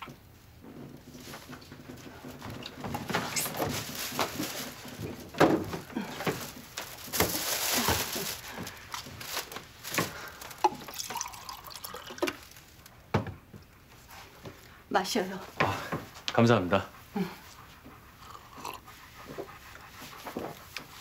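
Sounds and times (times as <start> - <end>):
plastic bag rustling: 1.1 - 12.9
water poured into a glass: 10.7 - 12.4.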